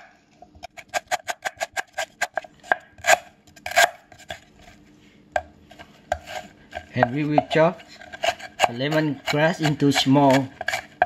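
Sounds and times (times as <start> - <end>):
knife chopping on wooden board: 5.4 - 11.0.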